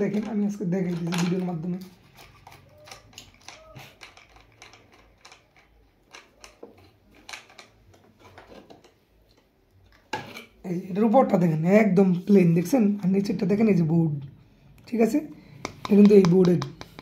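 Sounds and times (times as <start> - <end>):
hands clicking and tapping on shelf: 0.0 - 7.7, 15.6 - 17.0.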